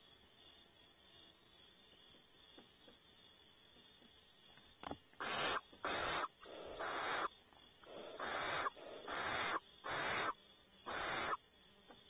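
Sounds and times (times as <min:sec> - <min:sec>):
barn owl hissing: 0:05.2 - 0:11.4.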